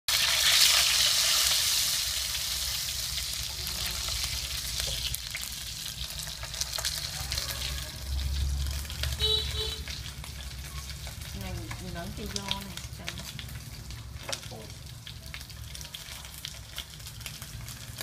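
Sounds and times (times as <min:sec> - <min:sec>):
meat sizzling in a frying pan: 0:00.1 - 0:18.0.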